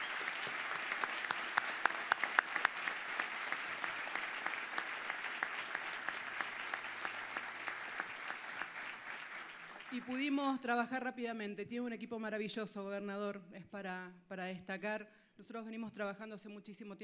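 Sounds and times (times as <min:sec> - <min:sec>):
sharp individual claps: 0:00.0 - 0:10.0
audience applauding: 0:00.0 - 0:10.3.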